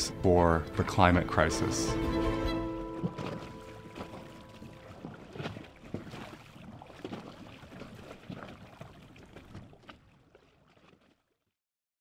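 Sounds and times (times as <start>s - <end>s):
water sloshing and lapping: 0.0s - 11.6s
small splashes: 2.5s - 11.6s.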